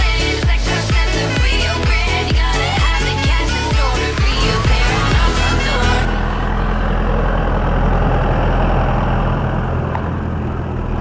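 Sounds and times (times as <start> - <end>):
background music: 0.0 - 8.1
tractor engine running: 0.0 - 11.0.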